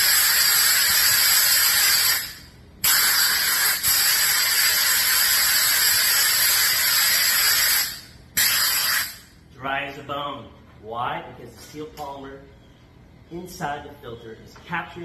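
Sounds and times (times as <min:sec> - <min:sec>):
compressed air hissing from air gun: 0:00.0 - 0:09.4.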